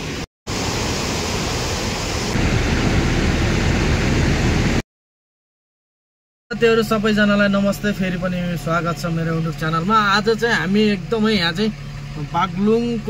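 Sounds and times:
loud rushing noise: 0.0s - 4.8s.

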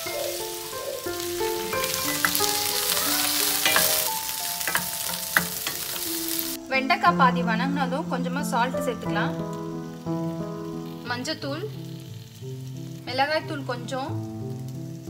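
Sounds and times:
okra sizzling in oil: 0.0s - 15.0s
wooden spoon knocking pan: 1.6s - 6.2s.

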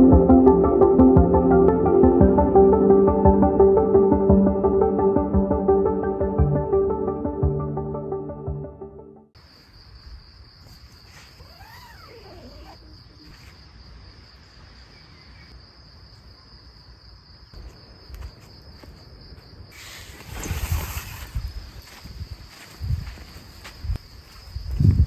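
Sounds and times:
insects trilling: 9.4s - 25.0s.

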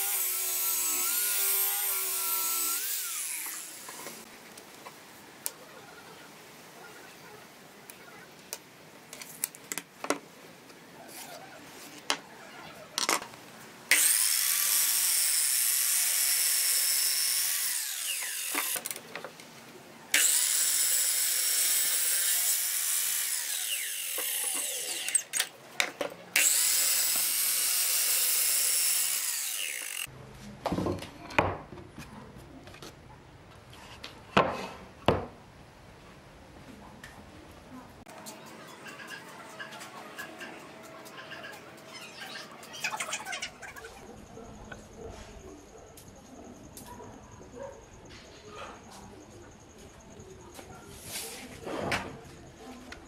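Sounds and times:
miter saw cutting wood: 0.0s - 4.2s, 13.9s - 18.9s, 20.1s - 25.5s, 26.4s - 30.1s.

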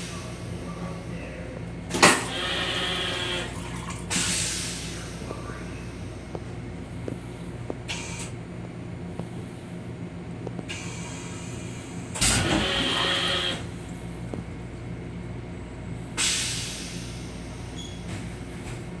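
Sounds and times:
train car humming: 0.0s - 19.0s
air hissing: 16.2s - 17.9s.

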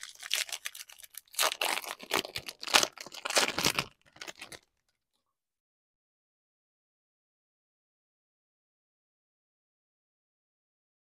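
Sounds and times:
foil wrapper tearing and crinkling: 0.0s - 4.7s.

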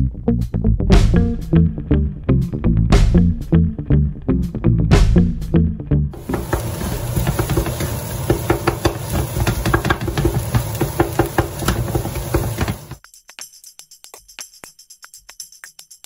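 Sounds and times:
frying hiss: 6.2s - 13.0s
spatula scraping frying pan: 6.2s - 13.0s.

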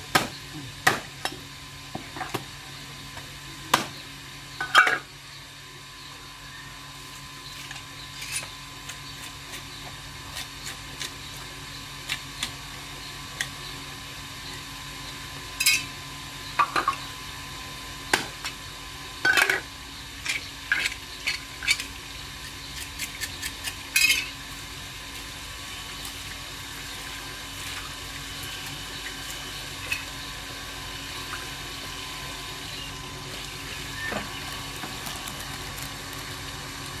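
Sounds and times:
water running from hose: 33.3s - 37.0s.

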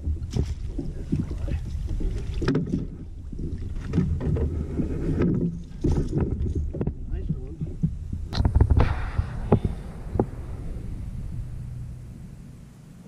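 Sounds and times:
water splashing: 0.0s - 6.1s
low uneven rumble: 0.0s - 13.0s.

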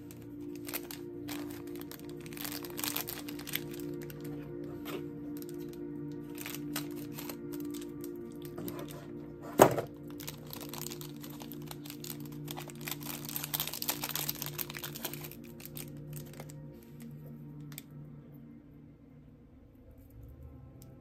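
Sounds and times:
plastic packaging crinkling: 0.0s - 17.8s.

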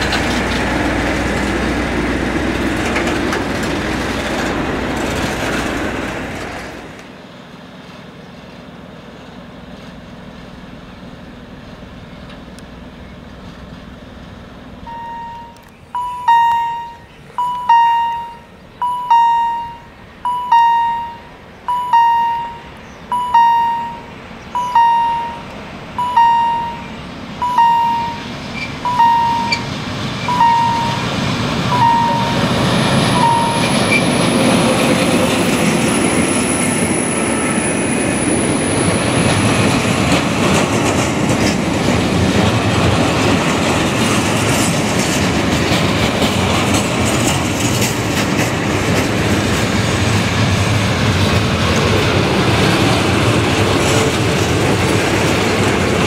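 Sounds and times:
train wheels clattering: 0.0s - 7.1s, 27.4s - 56.0s
diesel locomotive passing: 0.0s - 56.0s
level-crossing warning bell: 14.8s - 34.8s.

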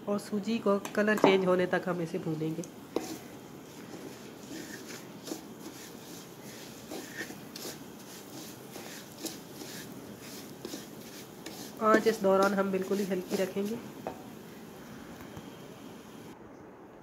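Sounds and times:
spatula scraping a metal pan: 2.9s - 14.2s.

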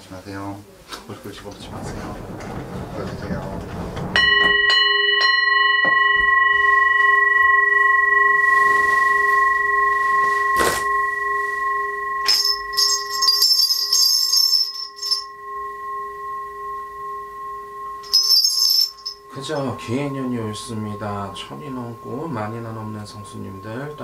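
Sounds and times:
singing bowl ringing: 1.3s - 24.0s
small bells jingling: 8.4s - 24.0s.

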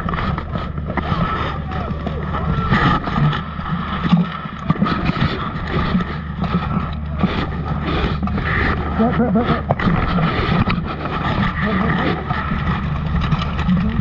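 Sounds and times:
muffled camera rubbing: 0.0s - 14.0s
indistinct voices: 1.0s - 3.6s.

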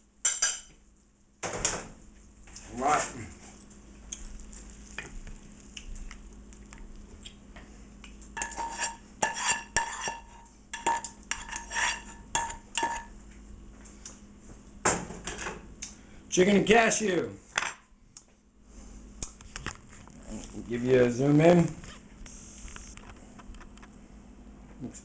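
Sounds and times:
utensil scraping a pan: 8.4s - 13.1s.

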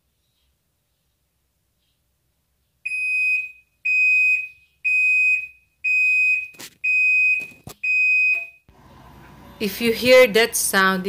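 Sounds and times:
washing machine buzzer beeping: 2.9s - 8.7s.

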